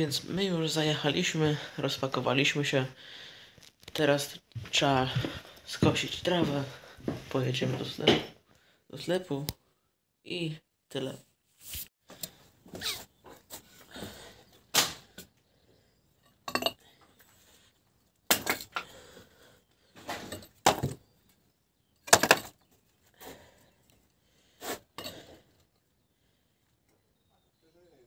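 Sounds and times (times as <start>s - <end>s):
objects clattering and clinking: 16.2s - 17.0s, 18.3s - 19.0s, 20.0s - 21.1s, 22.0s - 22.7s.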